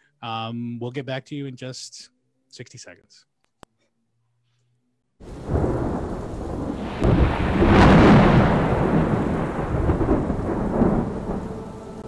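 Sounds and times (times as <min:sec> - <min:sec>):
rain: 0:05.2 - 0:12.0
thunder rumbling: 0:05.2 - 0:12.0.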